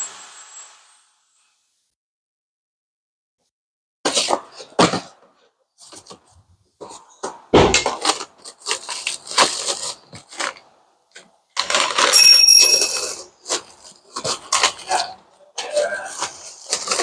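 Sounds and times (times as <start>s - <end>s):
paper and plastic bag crinkling: 8.0s - 10.7s, 11.6s - 12.2s, 16.1s - 17.0s.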